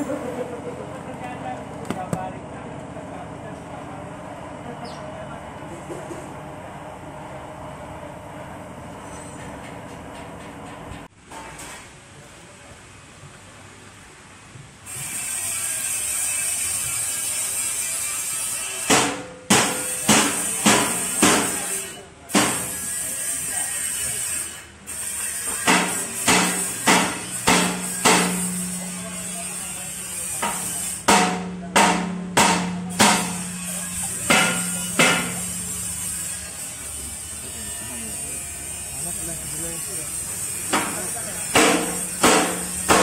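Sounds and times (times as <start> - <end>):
sharp ringing knocks: 25.6 - 28.8, 30.4 - 35.6, 40.7 - 43.0
regular beat of sharp hits: 30.4 - 35.5, 40.7 - 43.0.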